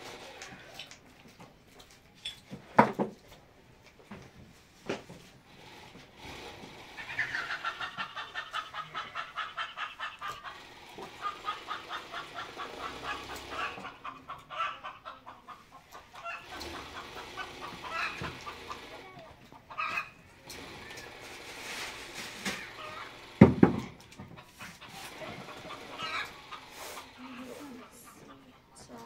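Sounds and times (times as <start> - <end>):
chickens clucking: 6.0 - 29.0.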